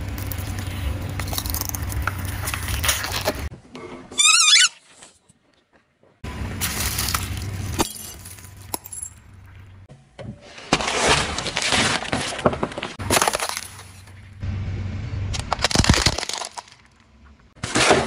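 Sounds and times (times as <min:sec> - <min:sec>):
tyre crushing brittle plastic: 0:06.4 - 0:08.8, 0:10.5 - 0:14.2, 0:15.4 - 0:17.0
sharp crack: 0:15.3 - 0:17.0.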